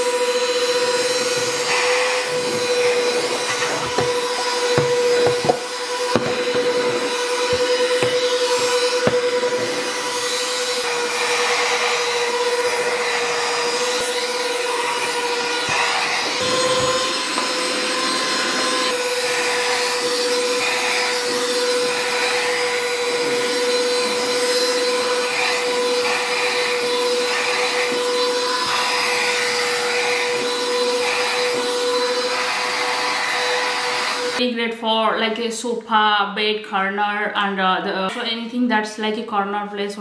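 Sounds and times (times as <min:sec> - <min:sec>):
handheld vacuum cleaner running: 0:00.0 - 0:34.4
nozzle rubbing over surface: 0:01.0 - 0:10.3.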